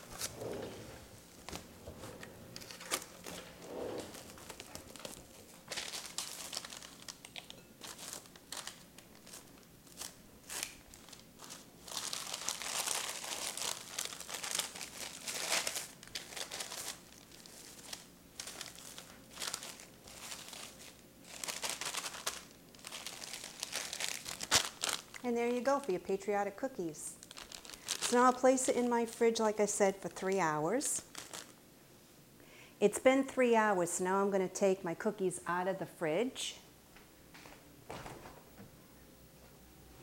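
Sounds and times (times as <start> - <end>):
plastic wrap and paper crinkling: 0.0 - 31.6.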